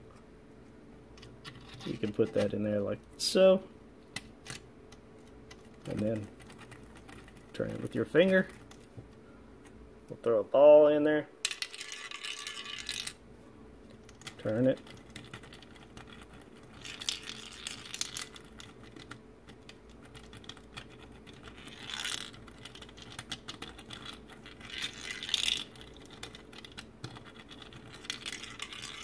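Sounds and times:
metal ball rolling on plastic track: 11.4 - 13.2, 21.3 - 23.2, 23.9 - 29.0.

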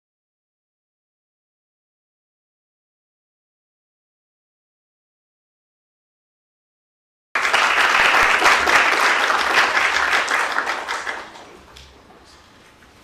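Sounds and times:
audience applauding: 7.4 - 11.9.

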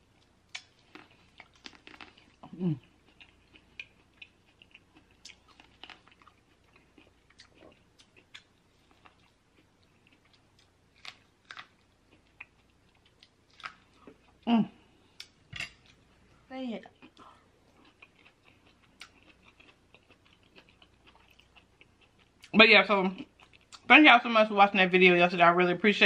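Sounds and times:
mouth chewing clicks and smacks: 17.0 - 22.6.

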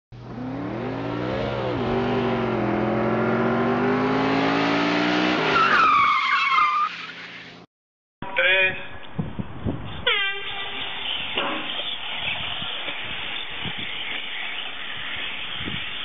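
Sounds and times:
race car engine revving: 0.2 - 5.7
tyre screech: 5.3 - 7.6, 10.0 - 16.0.

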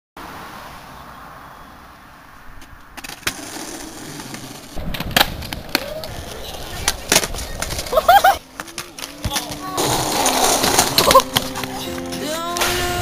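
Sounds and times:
skateboard wheels rolling on concrete: 0.2 - 13.0
skateboard clacks: 3.0 - 12.8.

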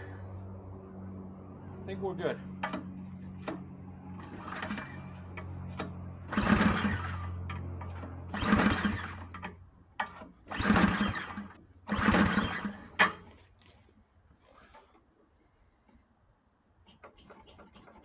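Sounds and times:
snowblower engine cranking: 2.6 - 13.6.

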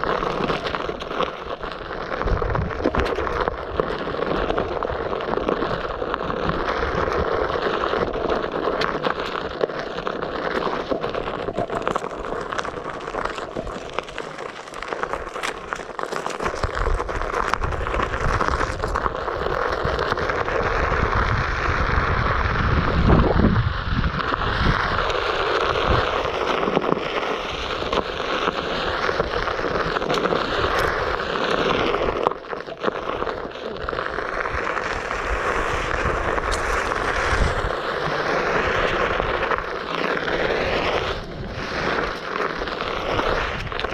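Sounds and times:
tyre rolling over gravel: 0.0 - 43.9
wind buffeting microphone: 2.2 - 3.3, 19.8 - 26.4, 34.3 - 39.7, 40.6 - 42.1.

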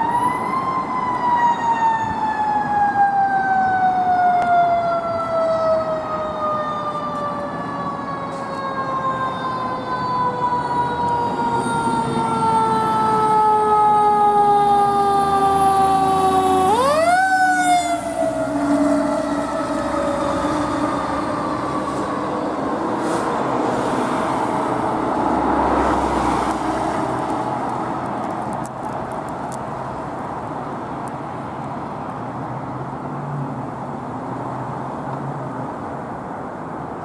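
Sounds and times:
fire engine siren wailing: 0.0 - 29.6.

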